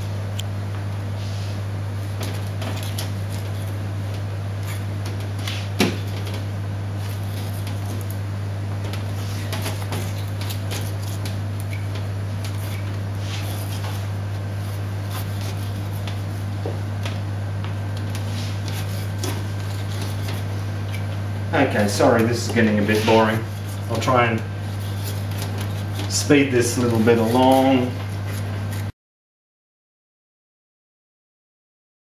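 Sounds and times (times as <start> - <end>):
steady low hum: 0.0 - 28.9
knife scraping bone: 9.1 - 16.5, 18.1 - 21.2, 21.8 - 28.9.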